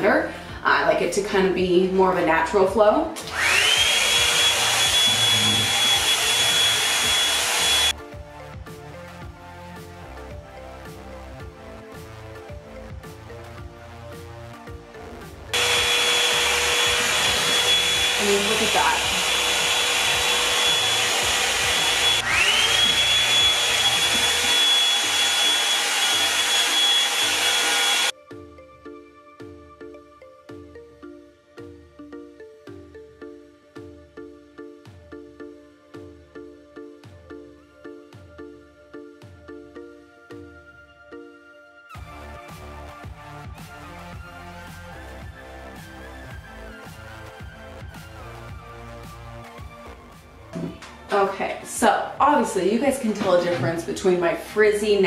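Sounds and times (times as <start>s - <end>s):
soft background music: 0.0s - 27.3s, 28.1s - 55.0s
hair dryer motor whine: 3.2s - 8.0s, 15.5s - 28.2s.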